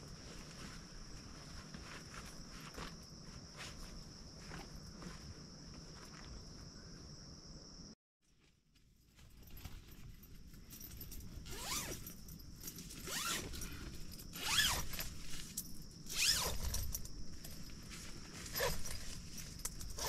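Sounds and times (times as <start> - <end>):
tent zipper unzipping: 11.4 - 12.0, 13.0 - 15.0, 16.1 - 16.9, 18.4 - 19.0.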